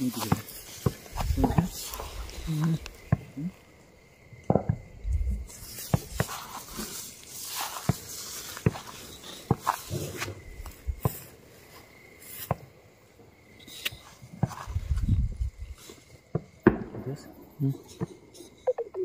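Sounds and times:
footsteps through dry grass: 0:00.0 - 0:03.1, 0:05.4 - 0:12.7
sharp crunches and snaps: 0:00.0 - 0:03.6.

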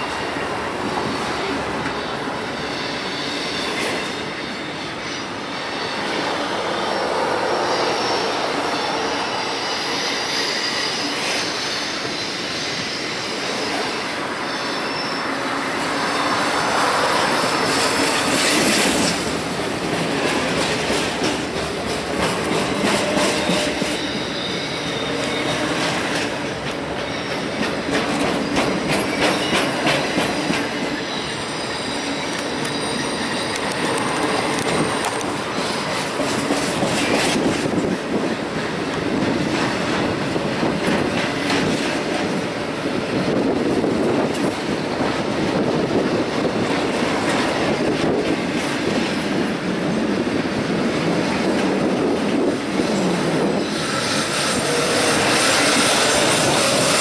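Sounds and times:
train wheels rumbling on rails: 0:00.0 - 0:57.0
high wheel squeal: 0:01.0 - 0:19.4, 0:22.7 - 0:26.4, 0:27.0 - 0:37.4, 0:52.8 - 0:57.0.

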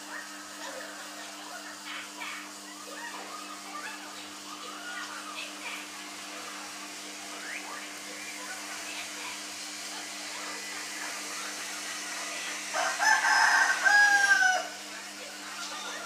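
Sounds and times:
rooster crowing: 0:12.7 - 0:14.9.

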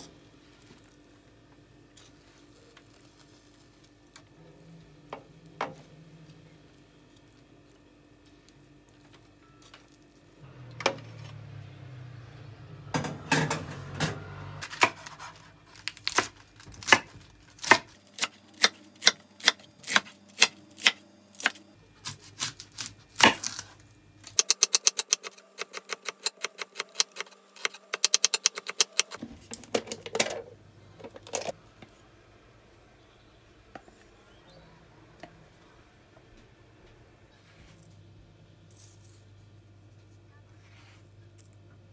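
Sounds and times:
knife chopping on wooden board: 0:16.0 - 0:23.6.

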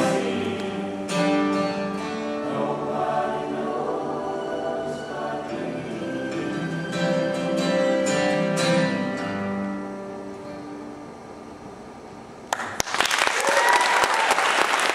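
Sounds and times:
people singing: 0:00.0 - 0:08.1
acoustic guitar strumming: 0:00.0 - 0:11.6
audience applause: 0:12.5 - 0:14.9.

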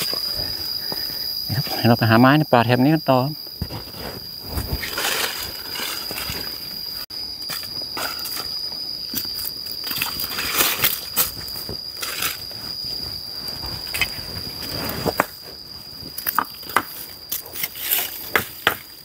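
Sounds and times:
high insect drone: 0:00.0 - 0:19.0
brushing rustle: 0:10.2 - 0:15.8.

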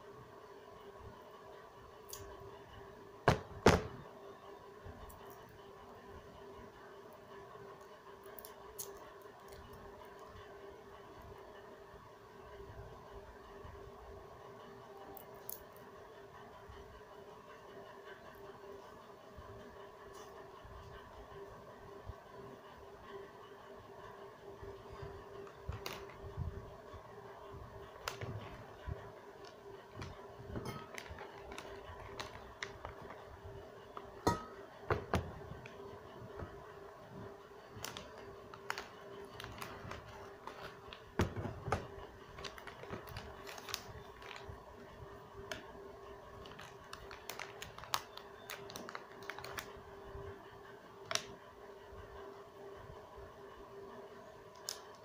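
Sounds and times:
foil crinkling: 0:25.4 - 0:26.3, 0:27.8 - 0:33.3, 0:37.7 - 0:45.6, 0:46.3 - 0:49.8.

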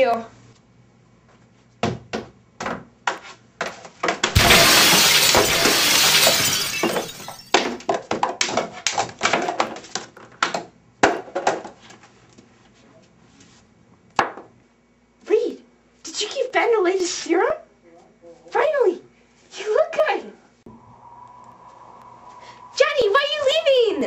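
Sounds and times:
glass shattering: 0:04.3 - 0:07.6.

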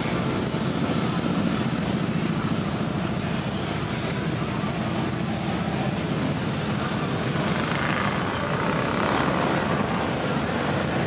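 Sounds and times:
motorcycles rumbling past: 0:05.7 - 0:11.0.

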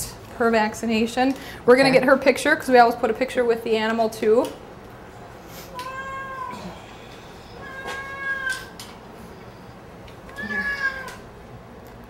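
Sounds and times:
cat meowing: 0:05.7 - 0:06.8, 0:07.5 - 0:08.8, 0:10.3 - 0:11.3.

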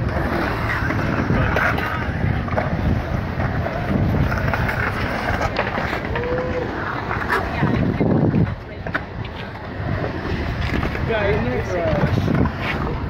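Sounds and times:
skateboard wheels rolling on concrete: 0:00.0 - 0:13.0
wind buffeting microphone: 0:00.0 - 0:13.0
onlookers' voices: 0:04.8 - 0:13.0.

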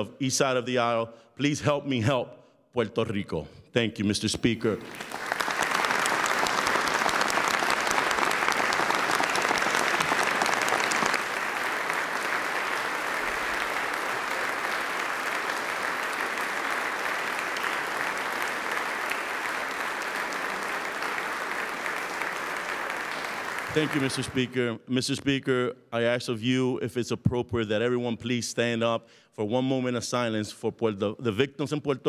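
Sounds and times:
crowd applauding: 0:04.8 - 0:24.6.

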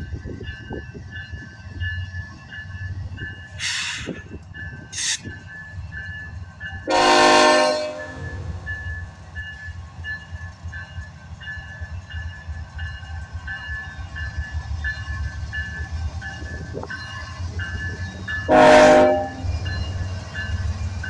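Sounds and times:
diesel locomotives rumbling past: 0:00.0 - 0:21.0
loud train horn blast: 0:06.9 - 0:08.4, 0:18.5 - 0:19.5.

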